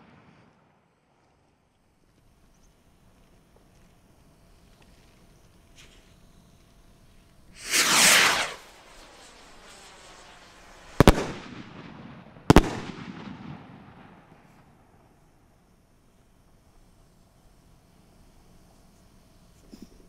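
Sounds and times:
firework bangs: 7.5 - 15.2
rocket launching whoosh: 7.6 - 14.2.

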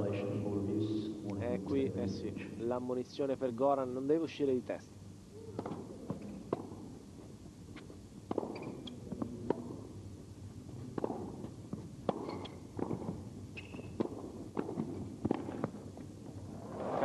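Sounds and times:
rackets striking tennis ball: 5.5 - 7.0, 7.7 - 10.0, 10.7 - 16.0
tennis ball bouncing: 5.5 - 7.0, 7.7 - 10.0, 10.7 - 15.8
shoe squeaks on court: 7.8 - 9.0, 12.2 - 12.6, 13.6 - 14.0.

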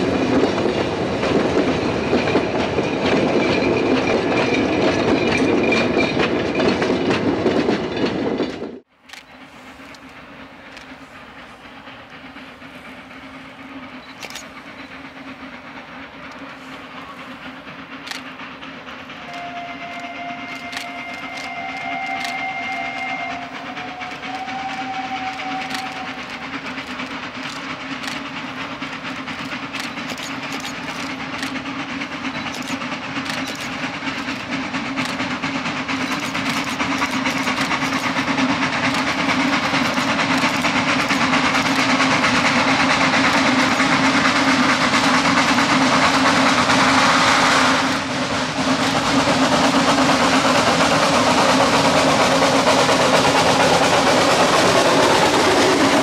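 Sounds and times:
steam train approaching: 0.0 - 56.0
wheels clicking on rails: 0.0 - 56.0
steam whistle: 19.2 - 26.6.

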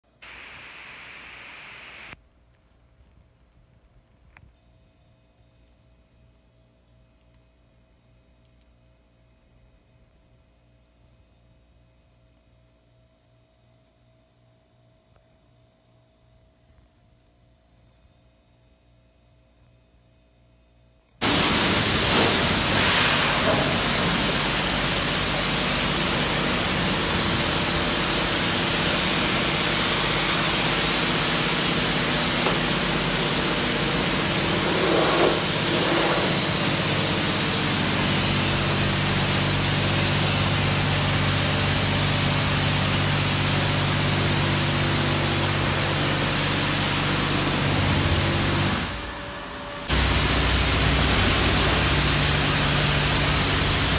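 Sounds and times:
steady hum: 0.1 - 2.2, 21.2 - 53.9
high-pressure water spraying: 21.2 - 49.0, 49.9 - 53.9.

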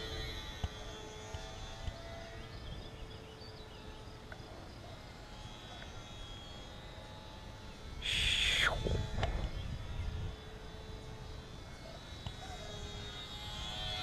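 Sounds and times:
electric motor whine overhead: 0.0 - 14.0
faint chirps: 8.0 - 8.8
wind rumble on microphone: 8.0 - 11.6.

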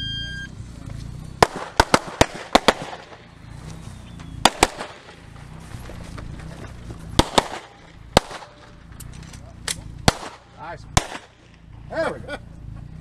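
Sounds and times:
handgun shots: 4.4 - 5.1, 7.2 - 8.7, 9.6 - 11.4.

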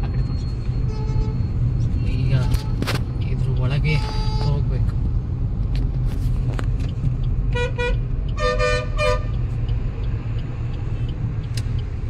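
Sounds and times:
engine and road noise in cabin: 0.0 - 12.0
car horn honking: 0.8 - 1.4, 3.9 - 4.6, 7.5 - 9.4.

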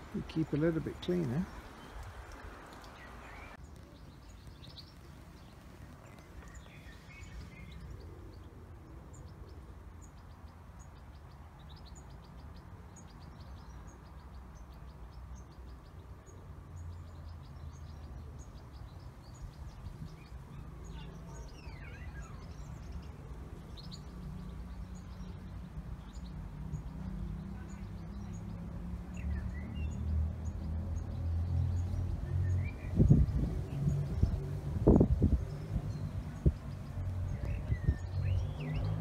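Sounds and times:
small birds chirping: 0.0 - 39.0.

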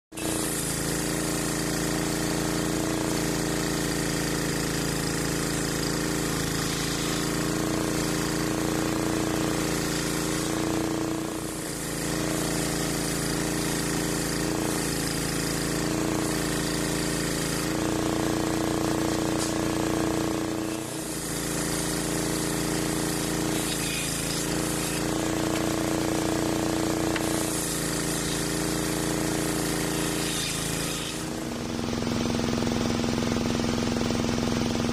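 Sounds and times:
circular saw ripping timber: 0.1 - 31.9.

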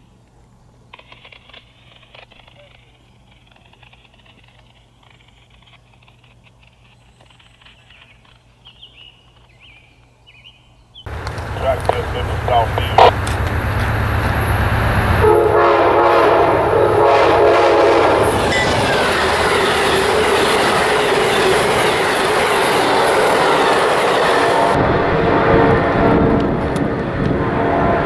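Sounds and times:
diesel locomotive passing: 11.1 - 28.0
train wheels rumbling on rail: 11.1 - 28.0
train air horn chord: 15.2 - 18.8, 24.2 - 26.4.

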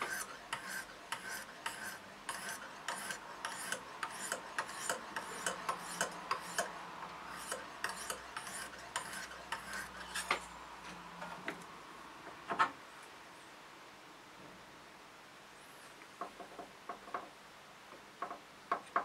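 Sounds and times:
knife scraping on sharpening rod: 0.0 - 6.7, 7.3 - 10.5.

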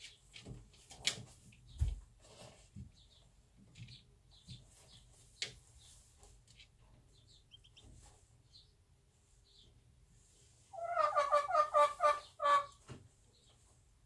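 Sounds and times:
chicks peeping: 1.6 - 13.8
hen clucking: 6.6 - 8.7, 10.7 - 12.9.

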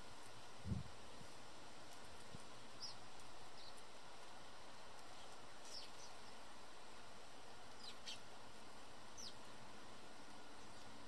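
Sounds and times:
steady background hiss: 0.0 - 11.0
sparrows chirping: 2.5 - 4.0, 4.9 - 11.0.

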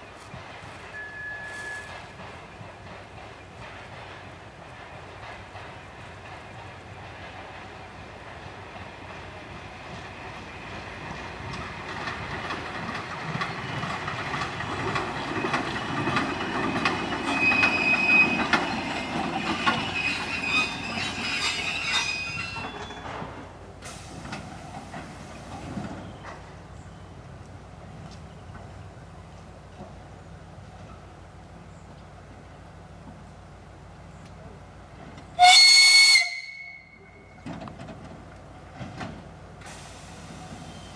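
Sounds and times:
diesel train passing: 0.0 - 40.9
high wheel squeal: 0.9 - 2.1, 16.6 - 23.2
wheels clattering over rail joints: 1.5 - 26.8, 37.3 - 40.9.

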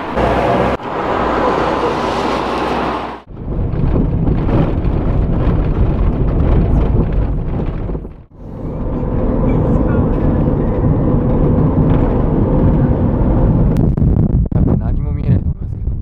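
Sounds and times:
even rushing noise: 0.0 - 5.3
car engine and tyres rumbling: 0.0 - 14.4.

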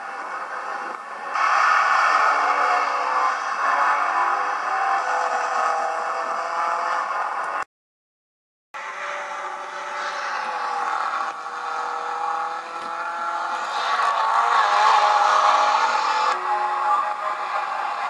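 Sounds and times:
racing car engines running hard: 0.0 - 7.6, 8.8 - 18.0.

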